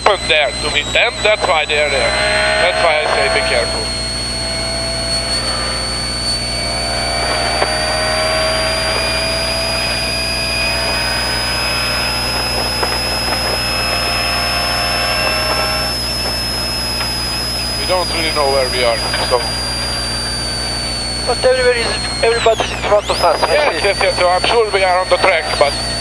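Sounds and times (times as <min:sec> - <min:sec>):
car engine running under load: 0:00.0 - 0:17.9
high whine: 0:00.0 - 0:26.0.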